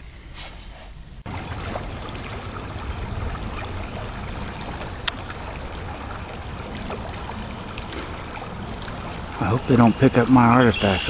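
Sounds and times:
flowing creek: 1.2 - 11.0
wind buffeting microphone: 1.2 - 11.0.

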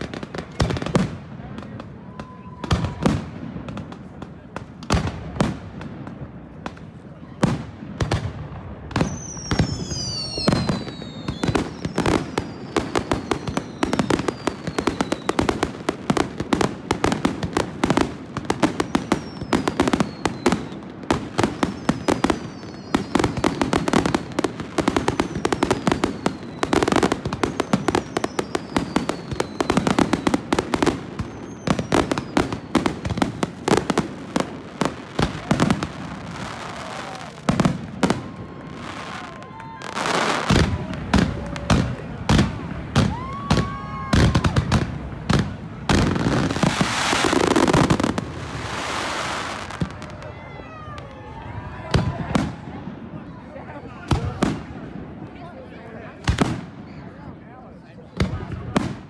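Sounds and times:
fireworks bangs and crackling: 0.0 - 59.0
falling firework whistles: 8.9 - 15.5, 18.7 - 20.9, 21.5 - 24.1, 25.0 - 33.8, 46.0 - 51.1.

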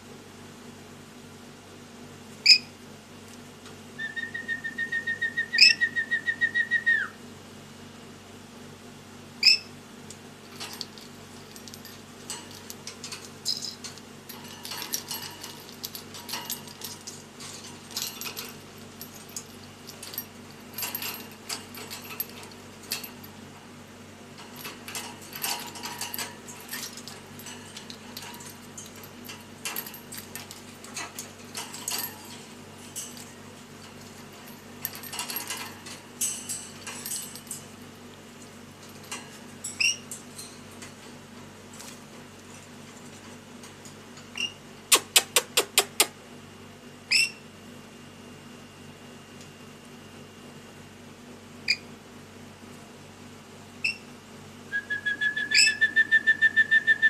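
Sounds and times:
bird whistle: 4.0 - 7.2, 54.7 - 57.0
bird claws clicking on cage bars: 10.5 - 23.2, 24.4 - 37.6, 44.3 - 46.1.

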